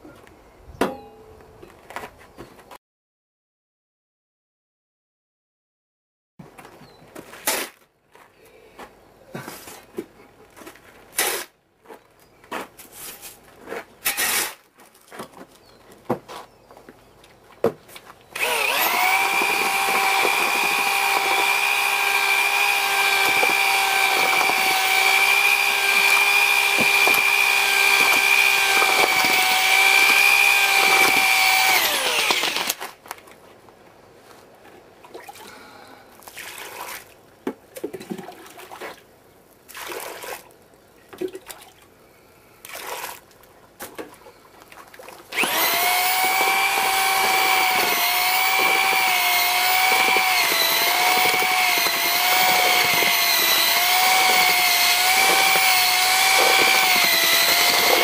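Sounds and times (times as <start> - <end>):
electric drill mixing mortar: 18.4 - 32.8, 45.3 - 58.0.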